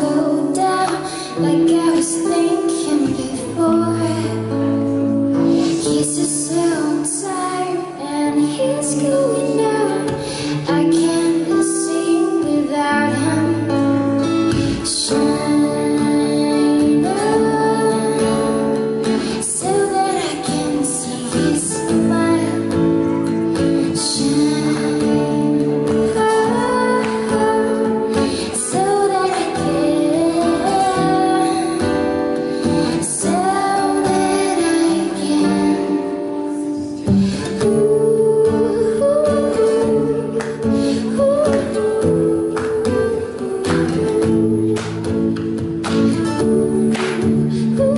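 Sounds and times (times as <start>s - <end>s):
acoustic guitar: 0.0s - 47.9s
woman singing: 0.0s - 47.9s.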